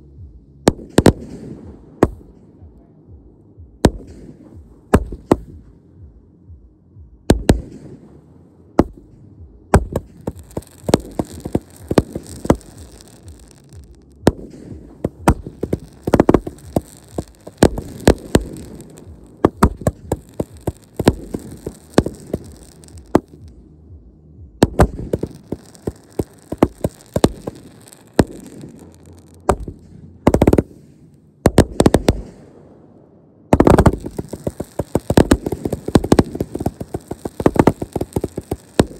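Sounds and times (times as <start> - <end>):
fireworks bangs: 0.7 - 2.4, 8.8 - 23.6, 24.6 - 32.6, 33.5 - 38.9
fireworks crackling: 0.7 - 2.5, 8.8 - 23.8, 24.5 - 32.6, 33.5 - 38.9.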